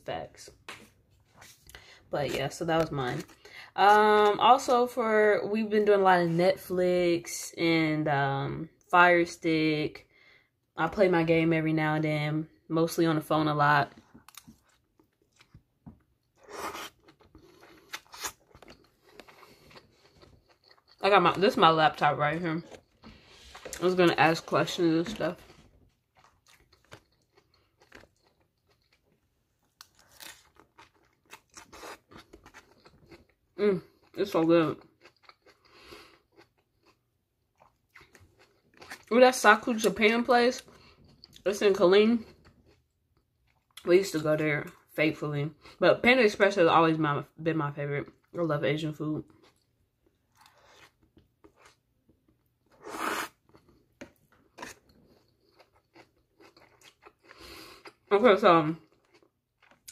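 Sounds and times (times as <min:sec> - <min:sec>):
soft chewing: 0:00.8 - 0:02.0, 0:13.9 - 0:34.2, 0:34.8 - 0:39.1, 0:40.6 - 0:41.5, 0:42.2 - 0:43.9, 0:49.2 - 0:58.1, 0:58.7 - 0:59.9
chewing with wet mouth clicks: 0:17.0 - 0:21.0, 0:26.1 - 0:33.4, 0:34.8 - 0:39.1
noodle slurp: 0:52.8 - 0:53.4.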